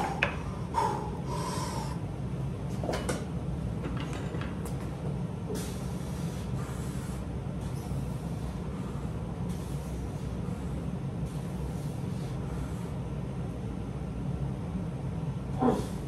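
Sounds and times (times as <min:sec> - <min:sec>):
heavy breathing: 0:00.0 - 0:02.1
steady low hum: 0:00.0 - 0:16.0.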